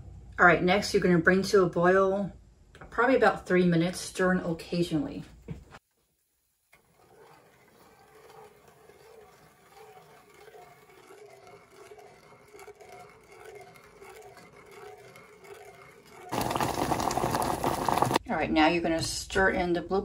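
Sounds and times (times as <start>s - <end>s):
wooden spoon scraping saucepan: 6.6s - 18.2s.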